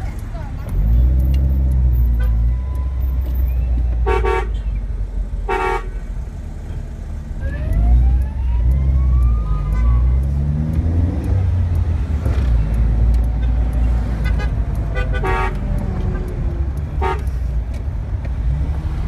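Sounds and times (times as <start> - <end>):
car engine and road rumble: 0.0 - 19.0
car horn toots: 4.0 - 4.7, 5.5 - 5.9, 14.2 - 16.3, 17.0 - 17.3
car engine revving: 5.1 - 19.0.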